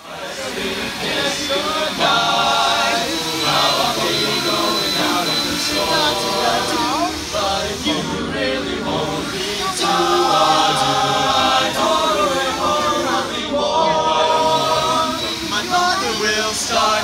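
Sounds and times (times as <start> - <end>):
male a cappella group singing: 0.0 - 17.0.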